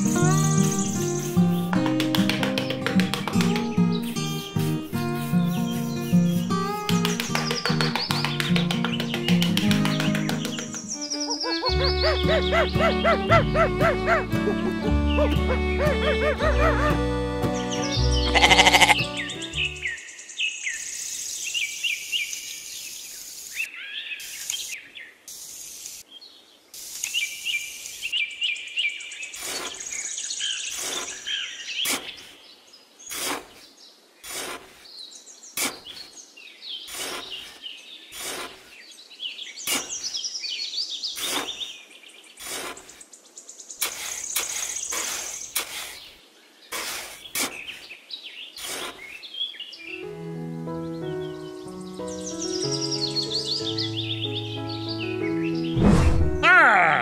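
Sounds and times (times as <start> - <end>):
birds chirping: 0.0 - 57.0
trowel scraping damp sand: 4.0 - 7.4, 29.4 - 30.0, 30.6 - 32.4, 33.0 - 35.0, 35.6 - 36.2, 36.8 - 38.8, 39.6 - 40.2, 41.2 - 41.8, 42.4 - 43.0, 43.8 - 47.9, 48.6 - 49.2.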